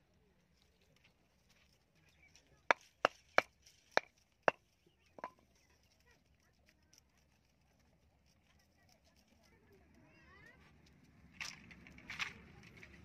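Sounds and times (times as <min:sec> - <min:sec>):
hatchet chopping bamboo: 0:02.7 - 0:03.5.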